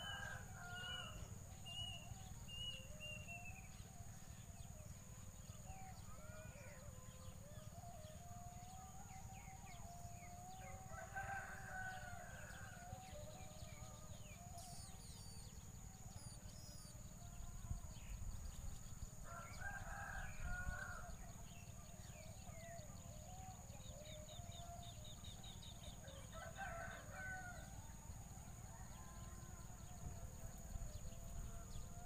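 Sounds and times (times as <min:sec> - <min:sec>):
rooster crowing: 0:00.0 - 0:01.2, 0:10.2 - 0:13.2, 0:19.2 - 0:21.2, 0:26.0 - 0:27.8
steady high-pitched whine: 0:00.0 - 0:32.0
faint bird chirps: 0:13.1 - 0:17.0.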